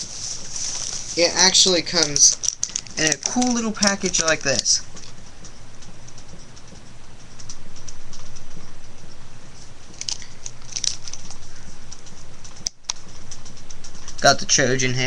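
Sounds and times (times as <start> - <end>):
packaging rustling and crinkling: 0.0 - 5.3, 9.6 - 14.3
low hum: 0.0 - 15.0.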